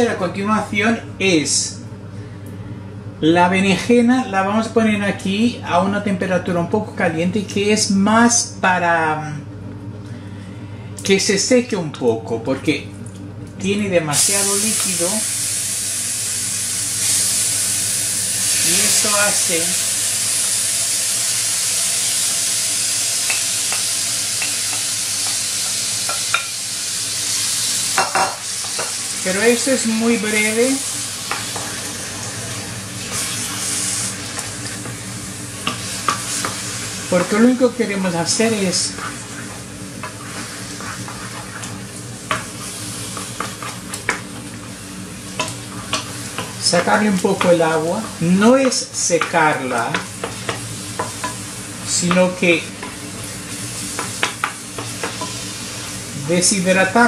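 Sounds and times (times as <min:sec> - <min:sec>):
food sizzling in a frying pan: 0:14.1 - 0:57.0
spatula stirring and scraping: 0:31.3 - 0:44.7, 0:45.3 - 0:56.0
wooden spoon scraping a bowl: 0:38.7 - 0:41.8.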